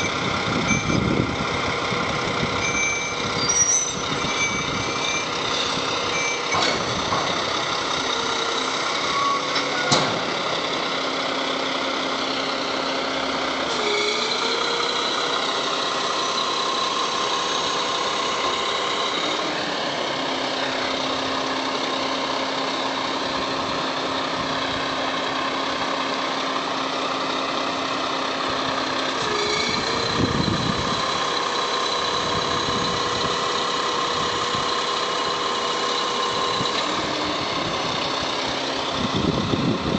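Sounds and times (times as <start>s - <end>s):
diesel engine idling: 0.0s - 39.9s
metal clank: 9.6s - 10.4s.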